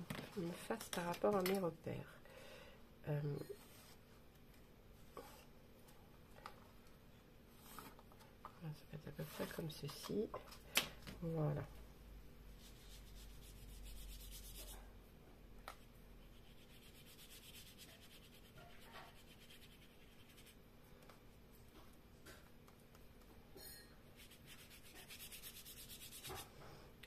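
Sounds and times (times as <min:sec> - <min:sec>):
brush bristles scrubbing card: 0:24.2 - 0:26.4.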